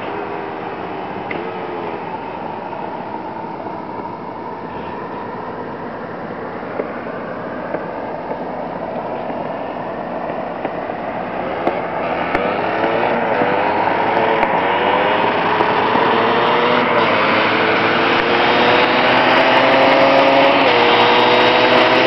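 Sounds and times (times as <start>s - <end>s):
dirt bike engine revving: 11.4s - 22.0s.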